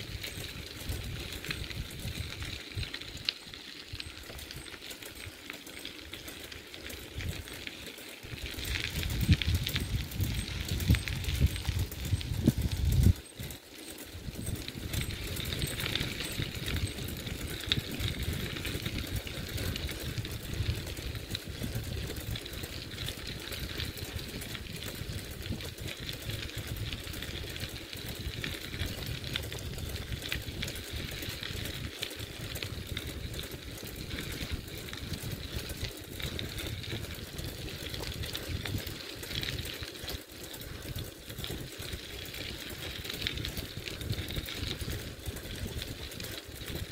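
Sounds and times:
bicycle tyres crunching on gravel: 0.0s - 46.9s
wind on microphone: 8.4s - 13.2s.

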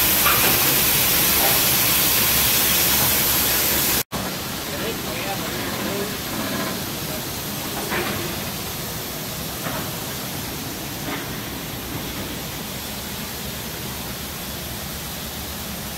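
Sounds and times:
machinery hiss: 0.0s - 15.9s.

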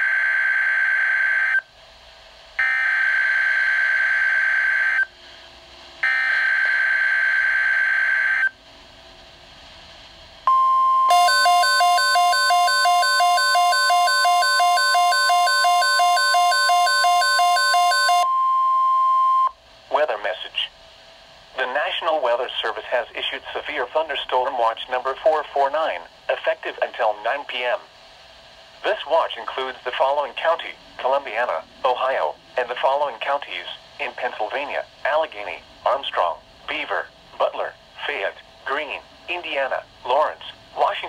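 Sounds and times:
steady warning alarm tone: 2.6s - 5.1s, 6.0s - 8.5s, 10.5s - 19.5s.

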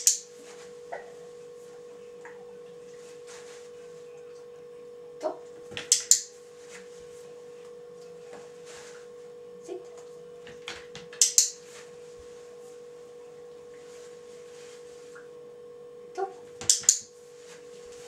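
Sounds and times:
electrical hum: 0.0s - 18.0s
clicker clicking: 5.8s - 6.2s, 11.2s - 11.5s, 16.6s - 17.0s.

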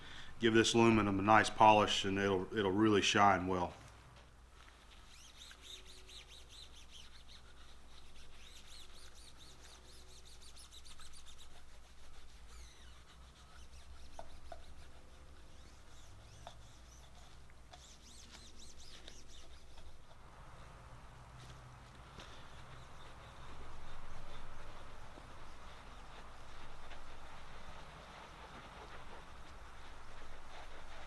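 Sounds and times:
cloth squeaking on metal: 5.0s - 20.1s.

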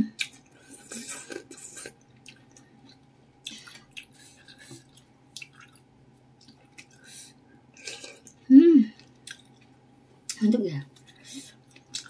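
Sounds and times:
chewing: 0.2s - 5.8s, 6.4s - 7.2s, 7.8s - 8.4s, 9.0s - 9.8s, 10.9s - 12.0s.

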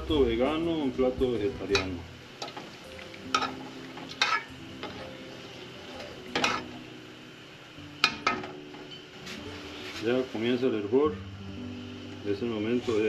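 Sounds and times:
metal spoon scraping a pot: 3.4s - 5.0s, 5.9s - 6.8s.

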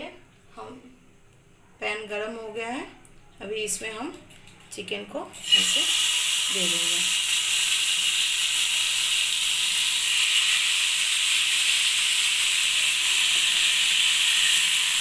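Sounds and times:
chicken sizzling in butter: 5.4s - 15.0s.

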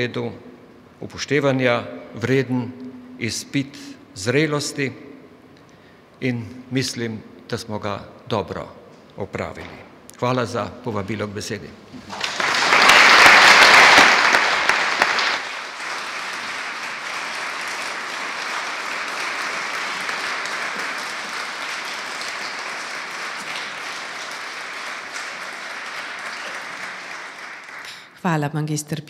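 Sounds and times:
audience applauding: 12.0s - 28.2s.

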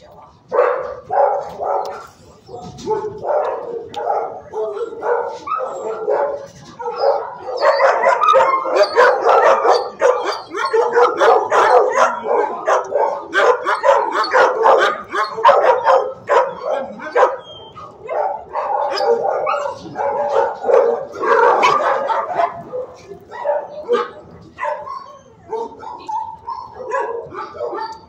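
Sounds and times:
dogs barking: 0.4s - 28.0s.

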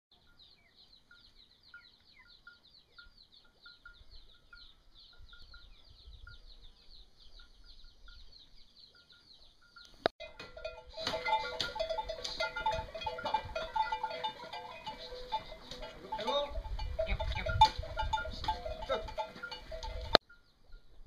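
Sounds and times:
rapid pulsing chirp: 13.8s - 15.9s.

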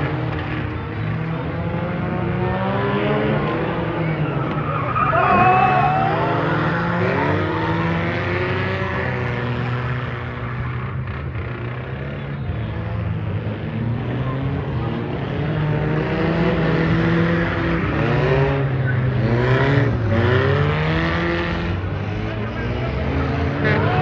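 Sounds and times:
car engines revving: 0.0s - 24.0s
tyres squealing: 4.2s - 7.7s.

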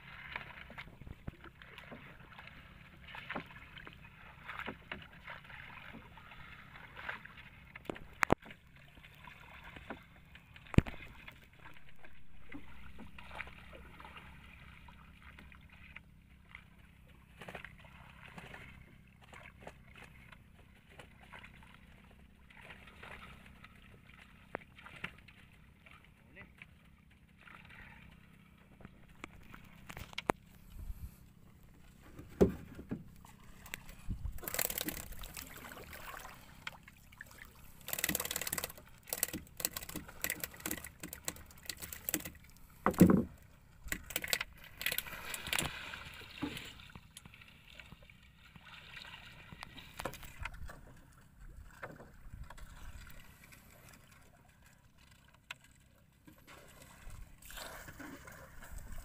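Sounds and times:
water sloshing around boats: 0.0s - 59.0s
knocks of wood and bamboo: 32.0s - 33.0s, 37.9s - 45.7s.

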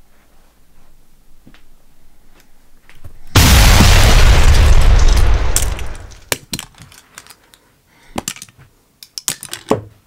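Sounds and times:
explosion: 3.4s - 6.3s
plastic bricks clicking: 6.2s - 7.6s, 8.2s - 9.9s.

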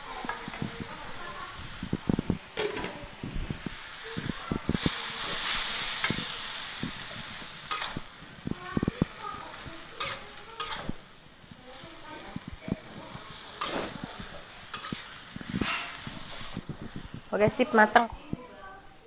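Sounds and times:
greens sizzling in a wok: 0.0s - 19.0s
spatula scraping and knocking pan: 2.6s - 3.0s, 4.2s - 11.0s, 12.2s - 17.7s.

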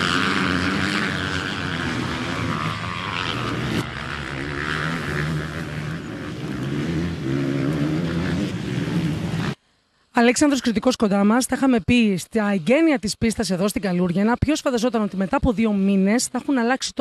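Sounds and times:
motorcycle engines revving: 0.0s - 9.7s.

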